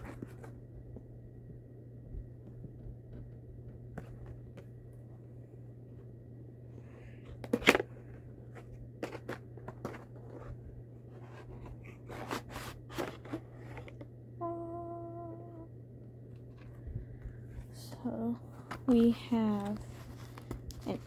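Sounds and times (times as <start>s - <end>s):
short hummed note: 14.4s - 15.7s.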